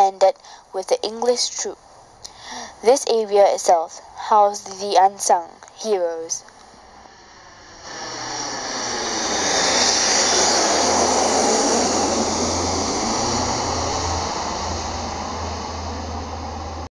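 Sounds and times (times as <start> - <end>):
aircraft flying overhead: 6.8 - 16.9.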